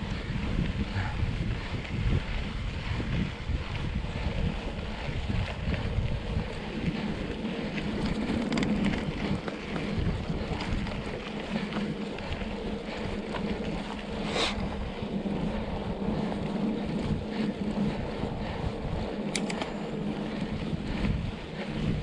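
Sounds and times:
bike rolling on dirt road: 0:00.0 - 0:22.0
steady low hum: 0:00.0 - 0:22.0
wind buffeting microphone: 0:00.0 - 0:22.0
sharp clicks: 0:19.3 - 0:19.8.

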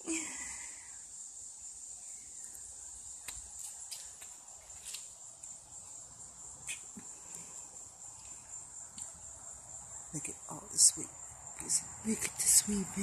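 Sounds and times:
crickets chirping: 0:00.0 - 0:13.0
faint clicks and rustles: 0:02.4 - 0:06.0.

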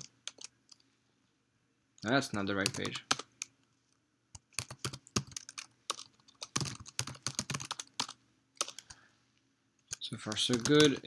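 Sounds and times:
keyboard typing: 0:00.0 - 0:00.8, 0:02.0 - 0:03.5, 0:04.3 - 0:09.0, 0:09.9 - 0:11.0.

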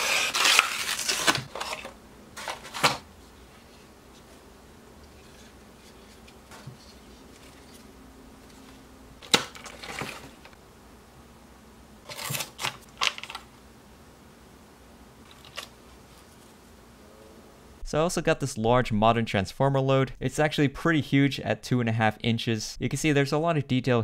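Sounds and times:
plastic packaging clicking and crinkling: 0:00.0 - 0:03.0, 0:12.1 - 0:13.5.

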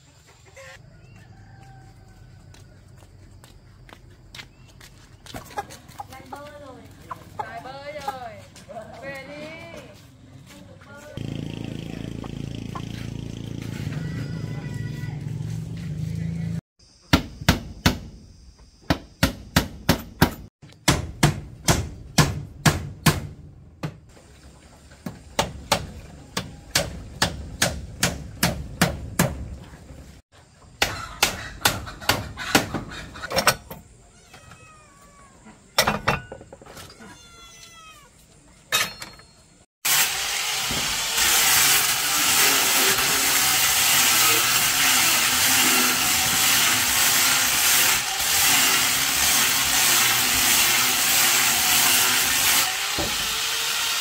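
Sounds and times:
sharp strikes on wood: 0:17.1 - 0:18.2, 0:18.8 - 0:24.0, 0:25.0 - 0:29.4, 0:30.8 - 0:32.9.

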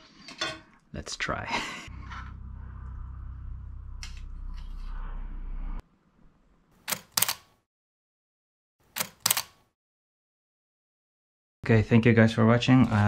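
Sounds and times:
low hum: 0:01.2 - 0:06.7
camera shutter clicks: 0:06.9 - 0:07.5, 0:09.0 - 0:09.6.

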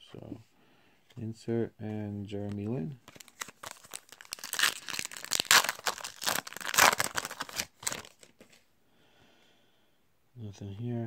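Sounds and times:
foil wrapper tearing and crinkling: 0:03.1 - 0:08.4.

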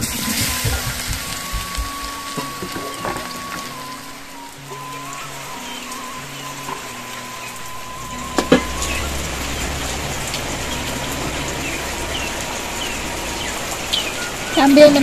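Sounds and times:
soft background music: 0:00.0 - 0:15.0
steady rain hiss: 0:00.0 - 0:15.0.

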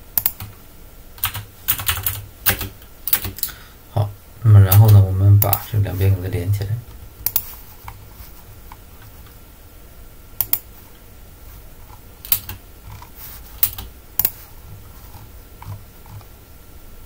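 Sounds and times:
low steady hum: 0:00.0 - 0:17.0
mouse and keyboard clicks: 0:07.2 - 0:08.0, 0:10.4 - 0:10.7.

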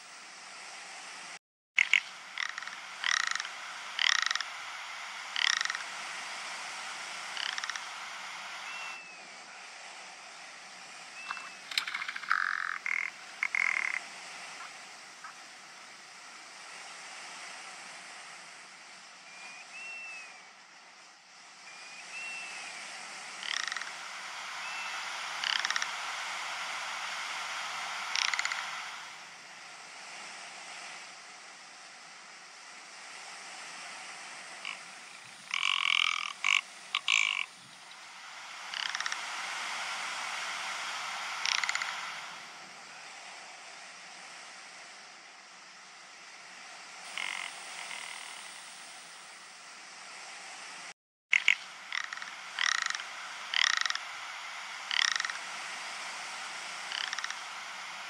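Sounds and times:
steady hiss: 0:00.0 - 0:58.0
ptarmigan croaking rattle calls: 0:01.8 - 0:09.2, 0:11.2 - 0:15.4, 0:23.2 - 0:29.2, 0:34.6 - 0:39.9, 0:40.5 - 0:42.5, 0:47.1 - 0:49.1, 0:51.3 - 0:58.0
faint thin whistles: 0:08.6 - 0:09.3, 0:10.9 - 0:11.7, 0:19.2 - 0:20.6, 0:21.6 - 0:22.8, 0:24.6 - 0:25.1.

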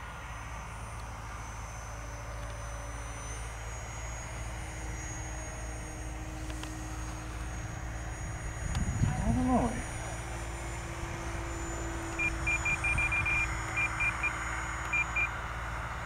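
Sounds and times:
model plane motor drone: 0:00.0 - 0:16.0
wind rumble on microphone: 0:07.6 - 0:10.2.

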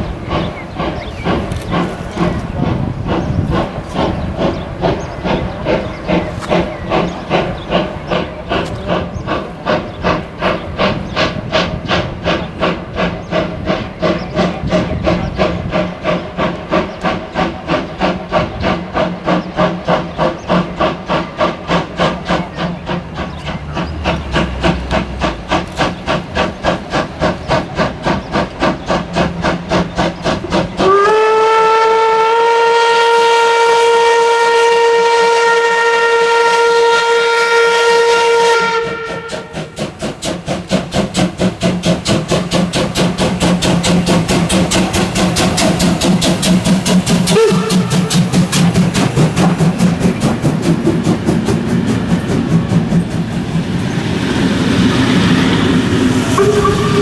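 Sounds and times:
steam locomotive exhaust beats: 0:00.0 - 0:57.0
steam whistle blast: 0:30.8 - 0:39.8, 0:47.3 - 0:48.2, 0:56.3 - 0:57.0.

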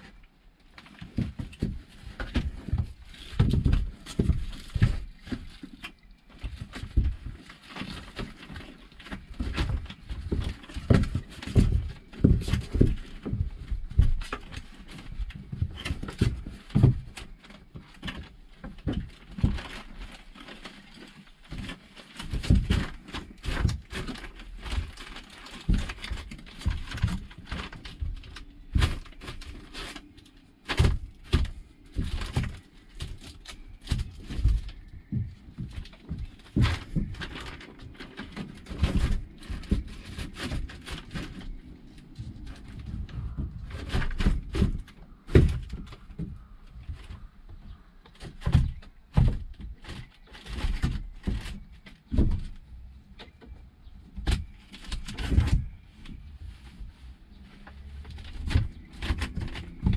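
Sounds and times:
soft thumps and knocks: 0:00.8 - 0:59.9.

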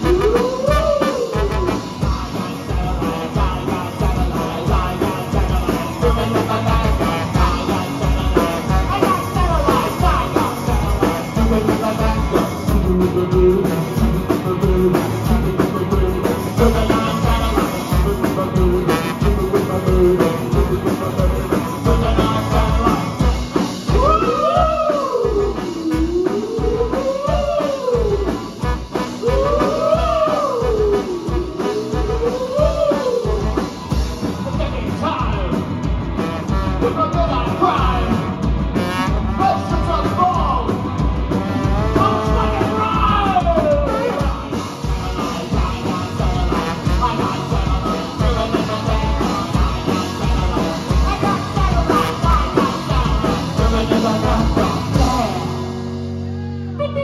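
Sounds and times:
trombone: 0:00.0 - 0:13.9, 0:16.6 - 0:24.0, 0:28.5 - 0:29.6, 0:36.0 - 0:40.6, 0:41.3 - 0:43.0, 0:43.7 - 0:55.4
live rock band playing: 0:00.0 - 0:57.0.

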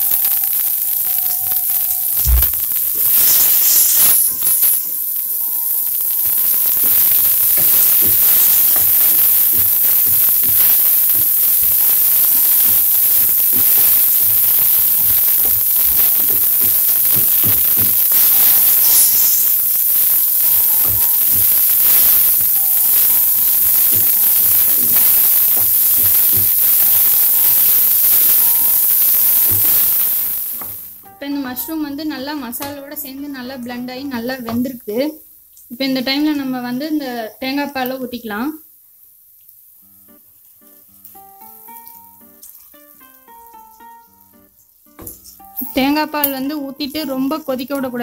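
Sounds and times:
mushrooms sizzling in a pan: 0:00.0 - 0:48.0
wooden spatula knocking a pan: 0:15.0 - 0:18.3.

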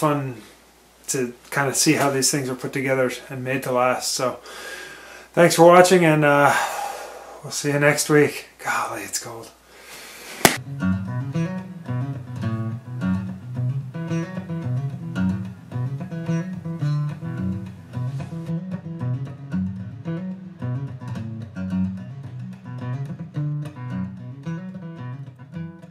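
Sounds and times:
finger-picked acoustic guitar: 0:10.6 - 0:25.9.

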